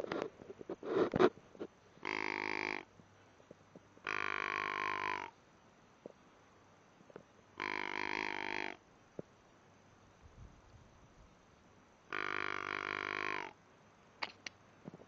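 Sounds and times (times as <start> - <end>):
buzzy grunting hunting call: 2.0 - 2.9, 4.0 - 5.4, 7.6 - 8.8, 12.1 - 13.6.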